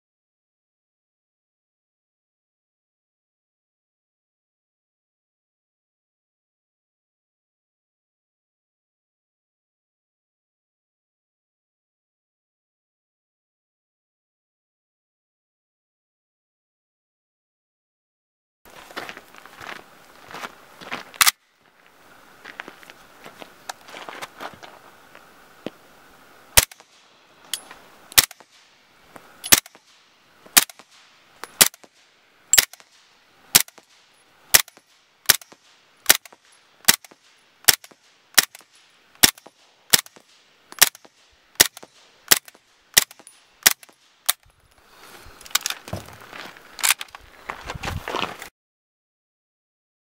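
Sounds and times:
suppressed gunshots: 26.6 - 28.8, 29.4 - 44.4
gun handling clatter: 26.6 - 46.2, 46.8 - 47.2.

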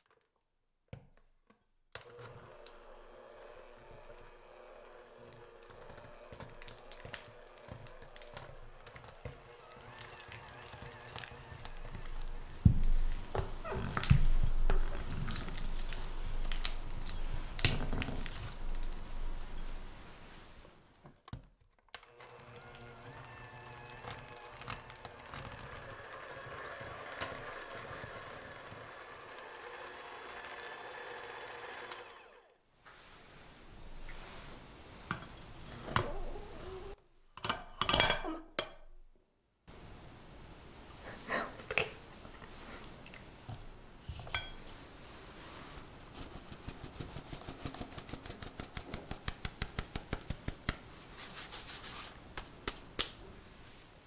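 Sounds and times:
electric hand mixer running: 2.0 - 17.2, 22.0 - 32.6.

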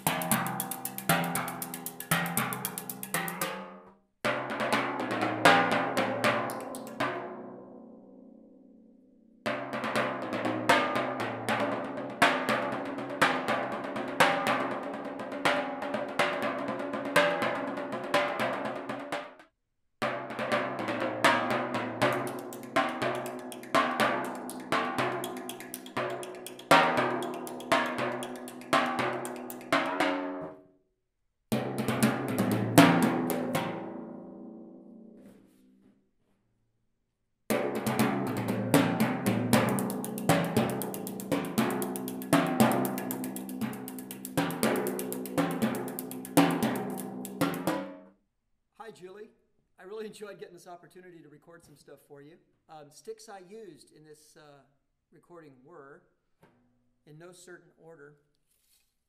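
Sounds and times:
timpani struck with brushes: 0.0 - 3.7, 20.0 - 30.5, 31.6 - 34.1, 37.5 - 48.0.

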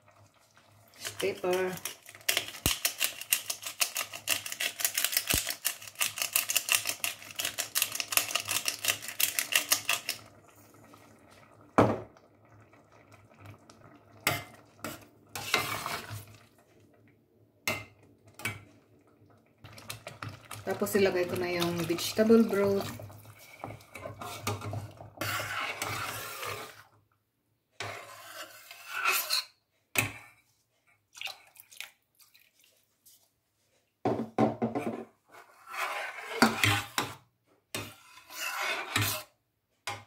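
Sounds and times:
spoon scraping pot: 1.0 - 10.2, 14.2 - 16.4, 19.7 - 26.9, 27.8 - 30.4, 34.6 - 40.0.

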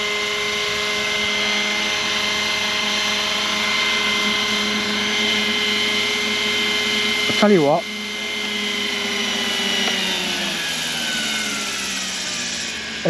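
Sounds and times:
rc helicopter whine: 0.0 - 13.0.

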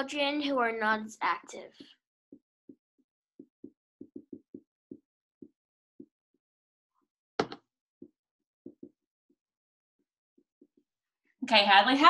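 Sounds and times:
marker tapping on whiteboard: 3.4 - 6.1, 7.4 - 9.0.

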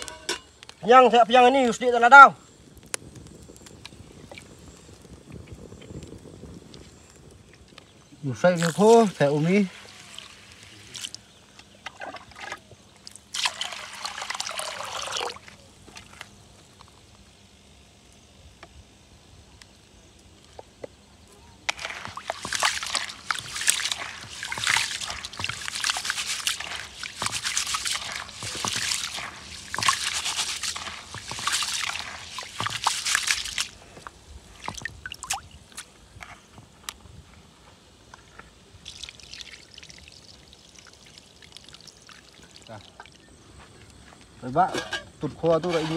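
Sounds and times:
water pouring onto rice: 8.5 - 11.2, 12.0 - 16.2, 21.7 - 33.8, 38.8 - 43.2, 45.6 - 45.9
hands swishing rice in water: 8.6 - 11.2, 21.7 - 33.8, 45.6 - 45.9.

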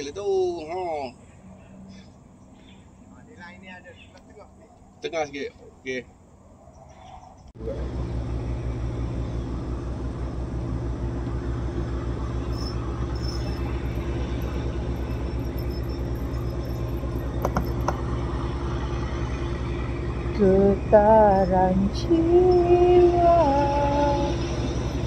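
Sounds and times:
motor running with low throb: 7.6 - 25.0.

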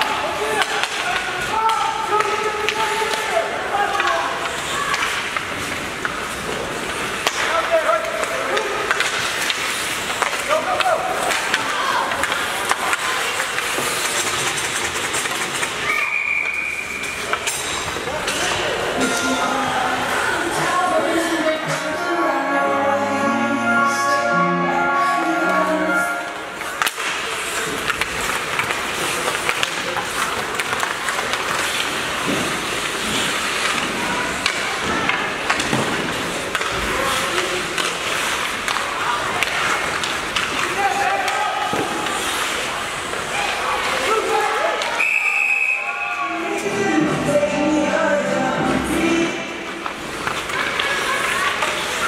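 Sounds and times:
hockey sticks and puck clicking: 0.0 - 21.8, 26.3 - 45.7, 49.1 - 52.0
skate blades scraping ice: 0.0 - 21.9, 25.8 - 45.0, 48.9 - 52.0
referee whistle blast: 45.0 - 46.0.

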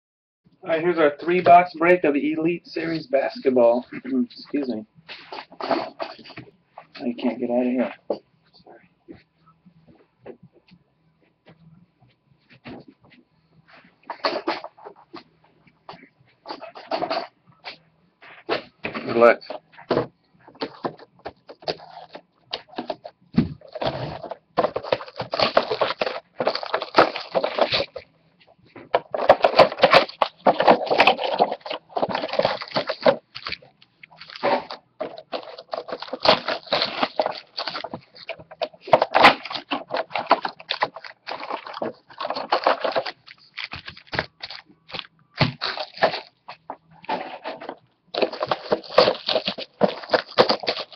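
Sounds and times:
shrink wrap tearing and crinkling: 23.6 - 28.0, 29.0 - 50.9.

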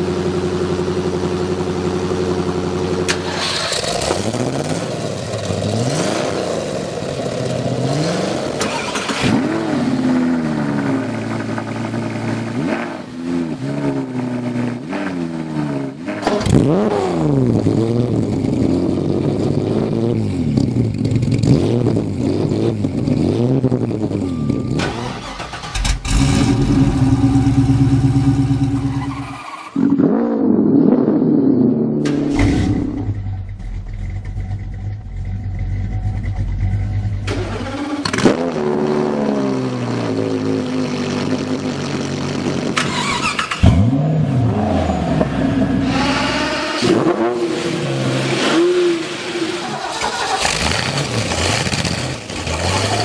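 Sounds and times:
car engines revving: 0.0 - 53.0.

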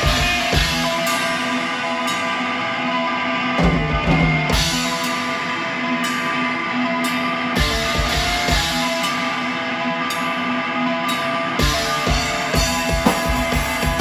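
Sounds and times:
drum kit hits: 0.0 - 1.2, 3.6 - 5.2, 11.6 - 14.0
electric guitar ringing notes: 0.0 - 14.0.

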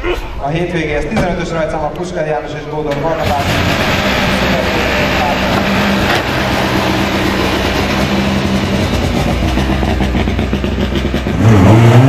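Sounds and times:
rally car engine revving: 2.8 - 12.0.

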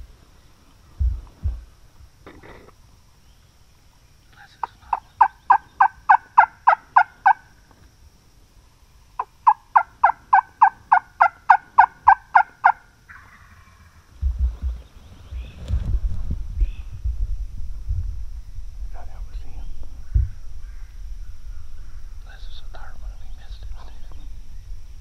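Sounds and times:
turkey yelping: 5.2 - 7.4, 9.2 - 14.0.

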